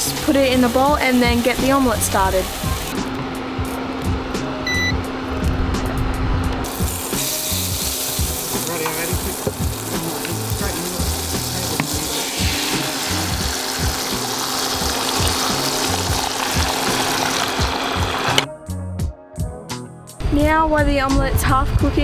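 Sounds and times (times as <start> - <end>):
butter sizzling in a frying pan: 6.7 - 18.4.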